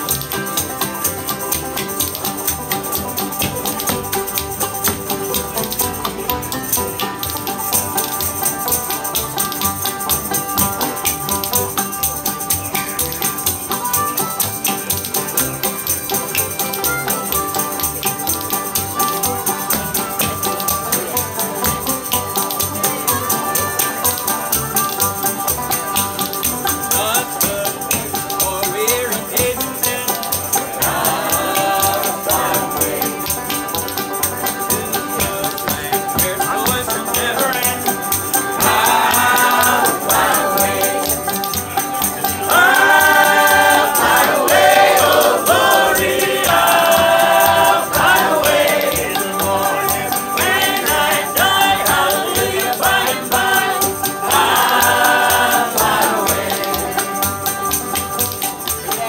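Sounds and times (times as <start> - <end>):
spoons clicking rhythm: 0.0 - 59.0
string band playing: 0.0 - 59.0
group singing: 26.9 - 57.8.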